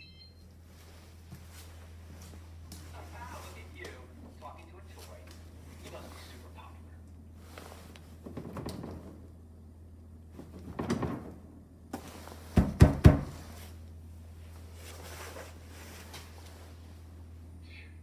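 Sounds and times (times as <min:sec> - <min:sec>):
steady low hum: 0:00.0 - 0:18.0
fridge door rustling and bumping: 0:08.1 - 0:09.4, 0:10.3 - 0:11.5, 0:12.4 - 0:13.5
sharp knocks: 0:12.6 - 0:13.4.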